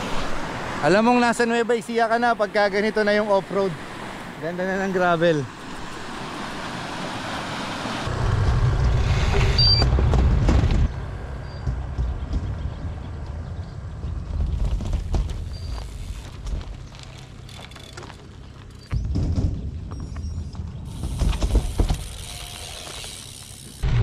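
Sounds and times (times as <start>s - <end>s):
bike tyres on gravel: 0.0s - 24.0s
wind buffeting microphone: 5.8s - 17.0s
rattling and knocking over stones: 14.3s - 23.0s.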